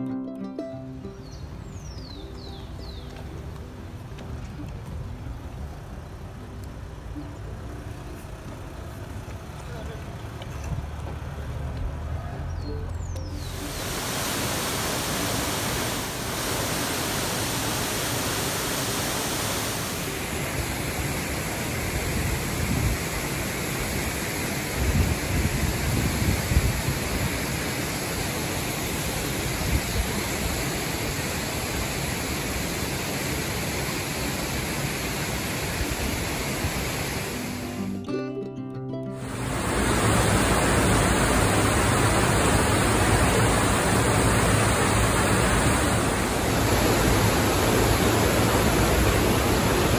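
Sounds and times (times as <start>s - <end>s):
waterfall rushing: 13.2s - 38.0s, 39.2s - 49.9s.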